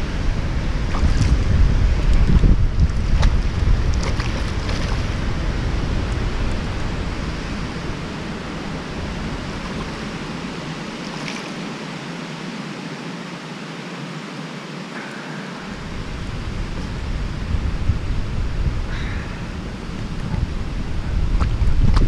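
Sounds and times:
wind rushing over microphone: 0:00.0 - 0:13.8, 0:14.7 - 0:22.0
fish splashing in water: 0:00.8 - 0:05.3.

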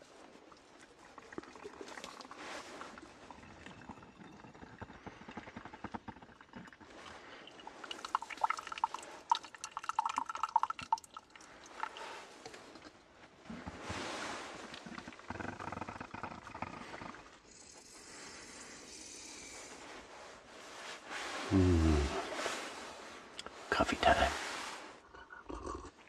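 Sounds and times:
liquid trickling into cup: 0:00.5 - 0:12.9.

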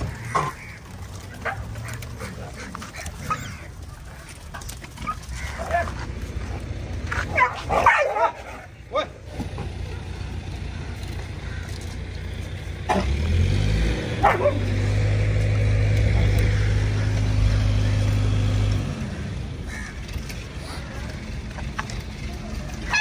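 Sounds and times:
vehicle engine running: 0:00.0 - 0:23.0
dog barking: 0:07.3 - 0:09.1, 0:14.2 - 0:14.7.

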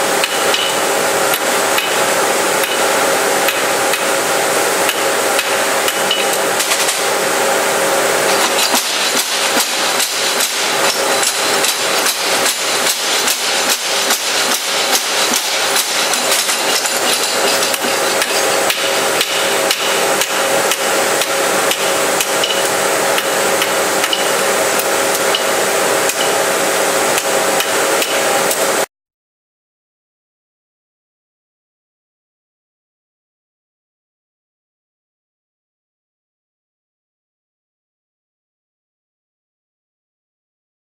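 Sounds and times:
steady hum: 0:00.0 - 0:28.9
hammer striking metal on anvil: 0:00.2 - 0:02.0, 0:02.6 - 0:02.9, 0:04.9 - 0:07.1, 0:08.2 - 0:26.4, 0:27.2 - 0:28.6.

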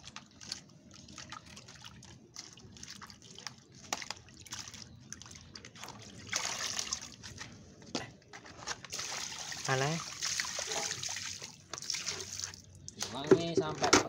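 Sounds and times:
seeds washed by hand in water: 0:00.0 - 0:07.6, 0:08.9 - 0:13.1
water running out of basket: 0:08.9 - 0:13.1.

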